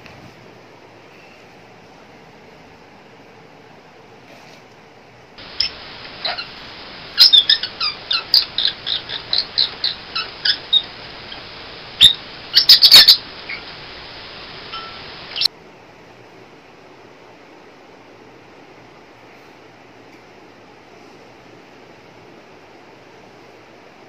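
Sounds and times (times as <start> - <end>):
background hiss: 0.0 - 24.0
parrot chirping: 5.4 - 15.5.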